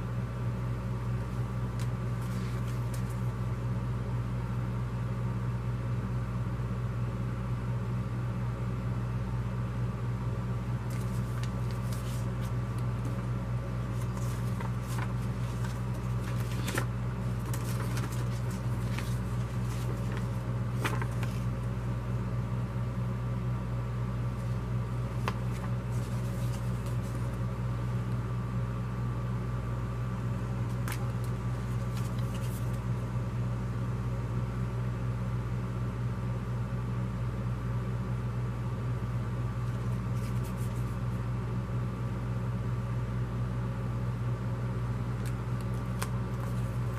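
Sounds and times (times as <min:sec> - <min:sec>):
steady low hum: 0:00.0 - 0:46.9
paper flyers being handled: 0:01.2 - 0:03.5, 0:10.8 - 0:21.8, 0:24.3 - 0:27.6, 0:30.6 - 0:33.0, 0:39.6 - 0:41.1, 0:45.2 - 0:46.9.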